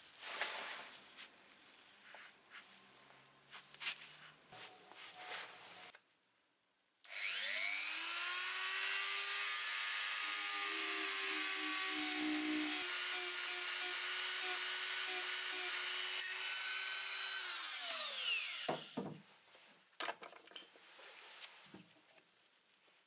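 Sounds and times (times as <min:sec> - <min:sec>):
rotary tool grinding metal: 0:07.1 - 0:18.7.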